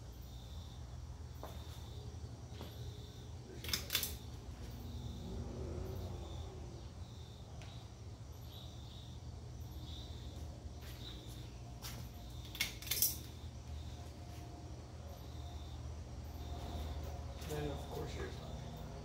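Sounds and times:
ceiling fan motor humming: 0.0 - 19.0
sharp clicks: 3.6 - 4.3, 12.4 - 13.4.

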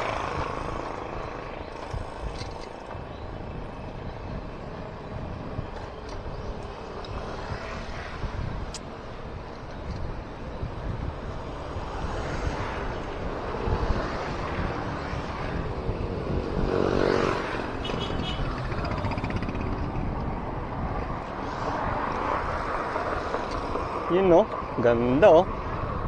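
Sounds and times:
road and traffic rumble: 0.0 - 26.0
wind rushing over microphone: 0.0 - 26.0
vehicle passing: 11.4 - 25.5.

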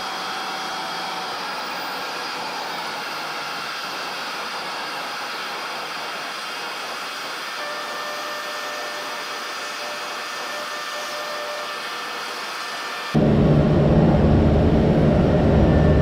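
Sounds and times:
turboprop engine drone: 0.0 - 16.0
faint whine tones: 13.1 - 16.0.

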